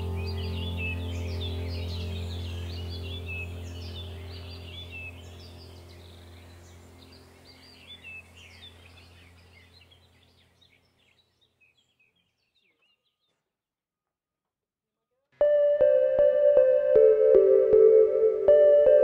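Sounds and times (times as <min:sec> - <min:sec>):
steady low hum: 0:00.0 - 0:11.0
small birds chirping: 0:00.0 - 0:13.5.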